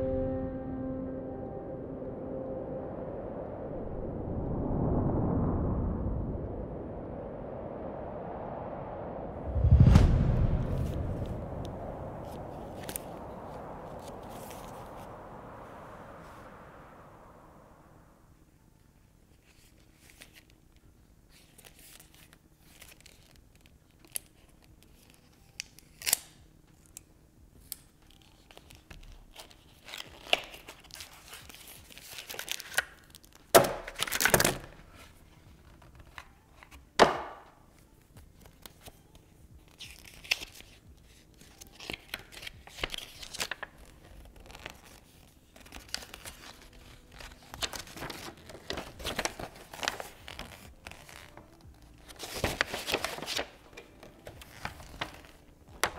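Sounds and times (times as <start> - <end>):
paper crinkling and rustling: 19.3 - 20.6, 21.3 - 27.0, 27.6 - 36.9, 37.8 - 55.9
paper tearing rips: 25.0 - 26.4.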